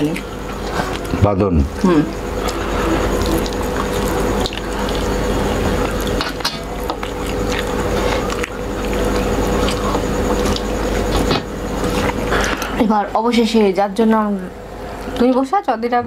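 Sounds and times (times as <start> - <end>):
steady background hum: 0.0 - 16.0
fingers squishing food: 2.1 - 12.7.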